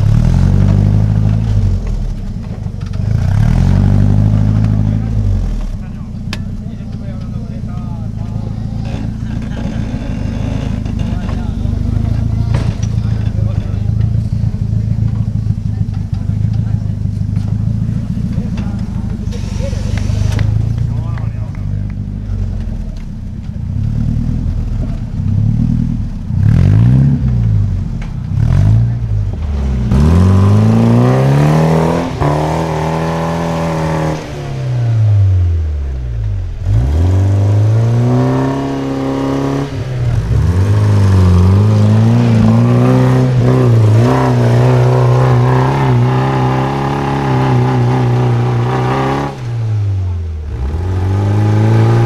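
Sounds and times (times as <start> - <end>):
buggy engine revving: 0.0 - 52.0.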